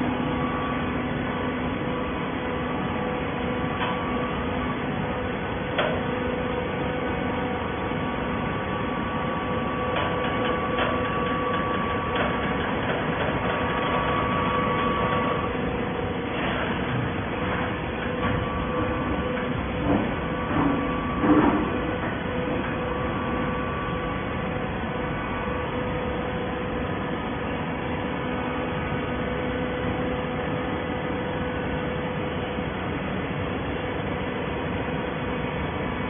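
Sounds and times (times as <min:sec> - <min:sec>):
hydraulic baler hum: 0:00.0 - 0:36.0.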